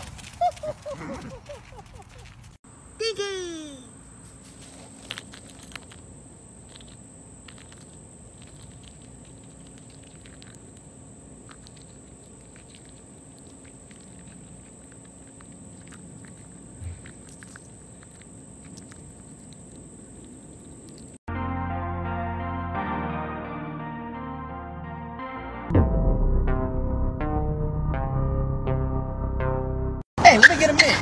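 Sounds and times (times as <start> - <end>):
chipmunk nibbling nuts: 4.1 - 21.2.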